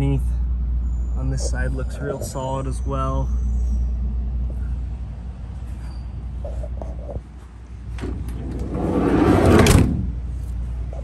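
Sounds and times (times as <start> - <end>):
steady low rumble: 0.0 - 11.0
door shutting: 7.9 - 10.1
door swinging rush: 7.9 - 10.2.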